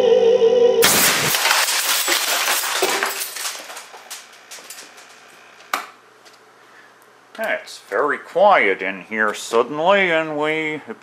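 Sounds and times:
metal pieces clattering on concrete: 0.8 - 5.2.

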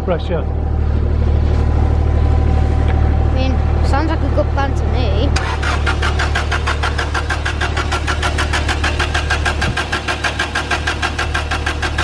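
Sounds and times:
steady low hum: 0.0 - 12.0
engine cranking on starter: 5.4 - 12.0.

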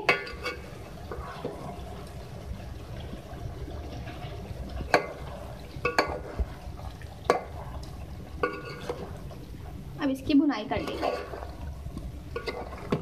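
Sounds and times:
metal spoon stirring in pot: 0.0 - 2.5, 3.9 - 9.8, 10.6 - 13.0
spoon knocking metal pot: 5.8 - 6.2.

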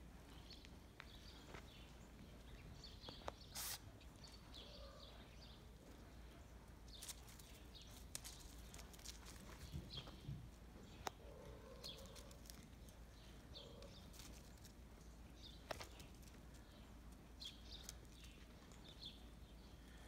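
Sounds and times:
faint bird chirps: 2.7 - 5.8.

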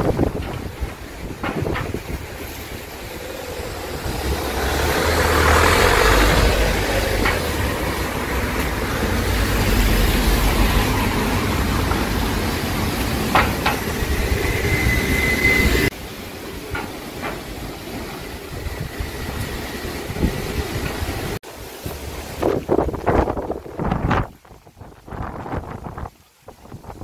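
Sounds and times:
strong wind buffeting microphone: 0.0 - 27.0
sharp knocks: 0.3 - 2.2, 13.3 - 14.0
steady high tone: 2.9 - 16.6.

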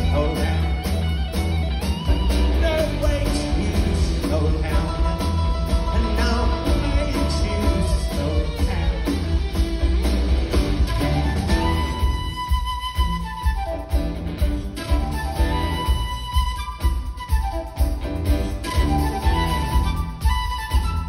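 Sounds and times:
man singing: 0.0 - 1.4, 2.4 - 9.7
live rock band playing: 0.0 - 21.0.

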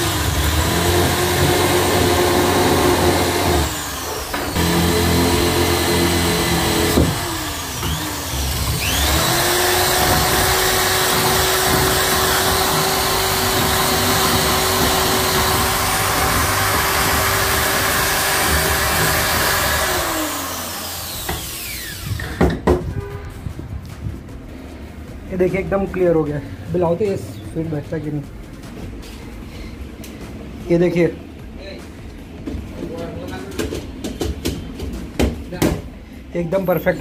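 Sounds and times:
electric drill boring wood: 0.0 - 22.6
knock: 22.2 - 23.0, 33.5 - 35.9.

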